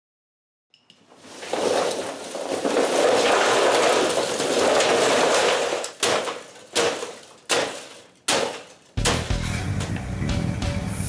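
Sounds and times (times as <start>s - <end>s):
shovel striking and scraping in can: 1.0s - 9.9s
loose material pouring into metal can: 1.2s - 7.3s.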